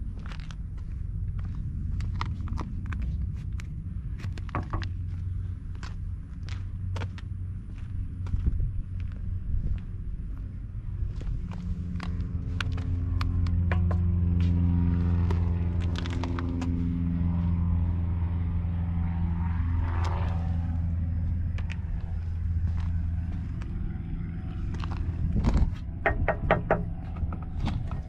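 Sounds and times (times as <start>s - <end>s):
engine idling: 11.1s - 16.8s, 20.8s - 28.0s
sharp taps and clicks: 26.0s - 27.5s.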